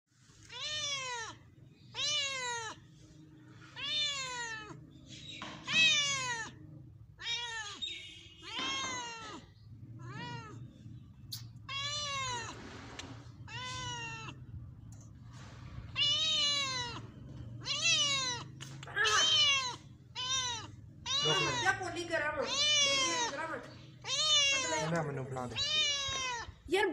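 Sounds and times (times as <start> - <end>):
cat meowing: 0.4 - 2.9, 3.5 - 4.9, 5.5 - 14.5, 15.9 - 26.7.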